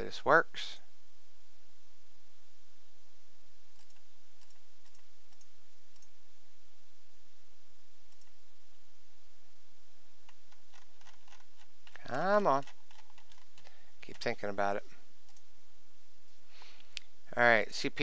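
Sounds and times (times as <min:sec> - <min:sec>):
microphone hiss: 0:00.0 - 0:18.0
computer mouse clicks: 0:03.7 - 0:06.2, 0:08.1 - 0:08.4, 0:10.2 - 0:14.3, 0:15.2 - 0:15.5.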